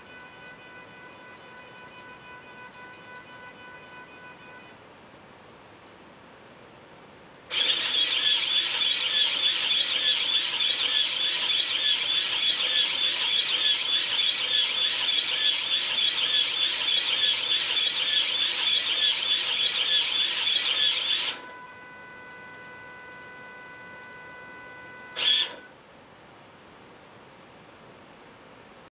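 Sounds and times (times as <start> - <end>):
robot motors buzzing: 7.5 - 21.4, 25.2 - 25.6
faint steady hum: 21.3 - 28.9.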